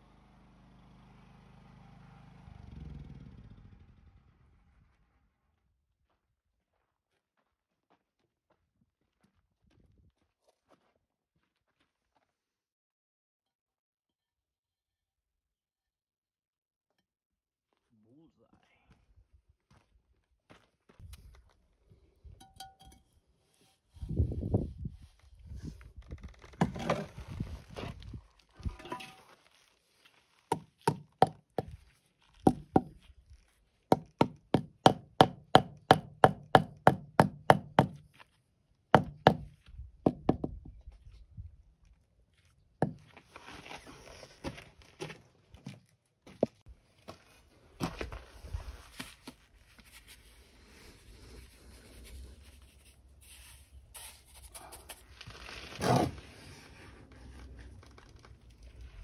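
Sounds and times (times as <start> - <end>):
rubber mallet tapping concrete block: 30.5 - 31.8, 32.5 - 33.0, 33.9 - 38.0, 39.0 - 39.5, 40.1 - 40.6
trowel scraping wet mortar: 49.9 - 57.3.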